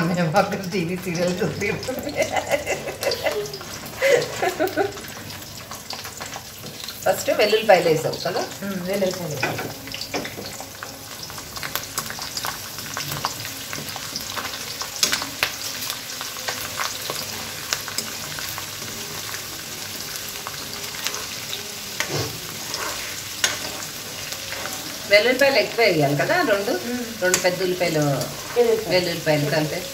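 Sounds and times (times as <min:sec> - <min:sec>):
garlic sizzling in hot oil: 0:00.0 - 0:29.9
metal ladle scraping pan: 0:20.8 - 0:25.7.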